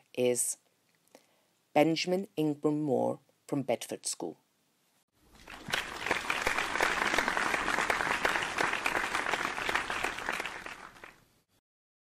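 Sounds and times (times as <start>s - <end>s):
crowd applause: 5.4s - 11.2s.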